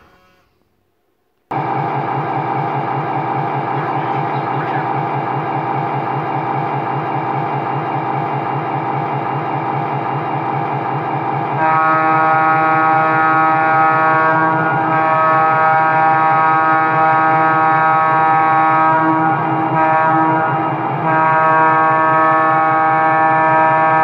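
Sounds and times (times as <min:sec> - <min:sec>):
locomotive air horn chord: 0:00.0 - 0:00.9, 0:11.3 - 0:24.0
model diesel engine idling: 0:01.5 - 0:11.4.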